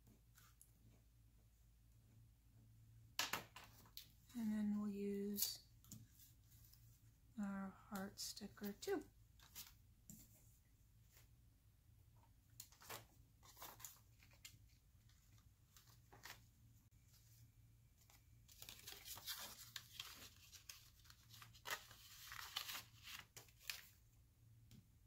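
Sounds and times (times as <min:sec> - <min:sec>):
paper rustling: 0:09.3 - 0:10.5, 0:12.6 - 0:24.0.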